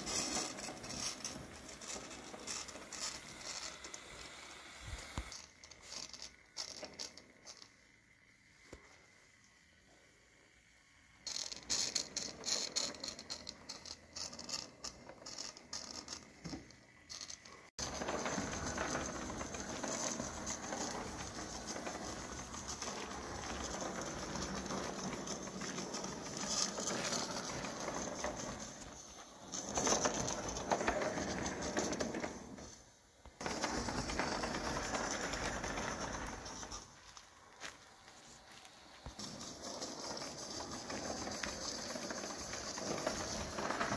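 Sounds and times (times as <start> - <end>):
wheels on rails: 0.0 - 43.9
rattle of irregular clicks: 0.1 - 4.5, 5.1 - 8.8, 11.2 - 32.8
steam locomotive running: 17.8 - 32.8.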